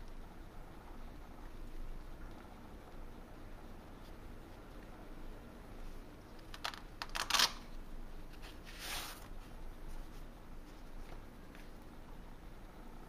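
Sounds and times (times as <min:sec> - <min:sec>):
sheet sliding swish: 0:08.5 - 0:09.4.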